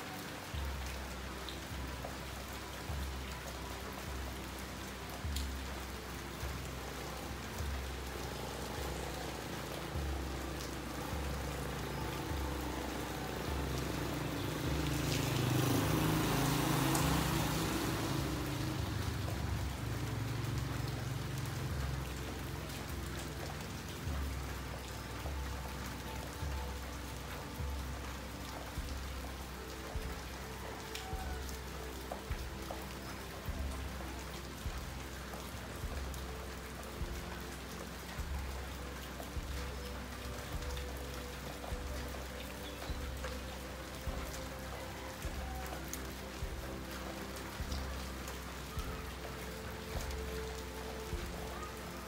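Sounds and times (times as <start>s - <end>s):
rain falling on street: 0.0s - 52.0s
vehicle passing: 8.5s - 23.3s.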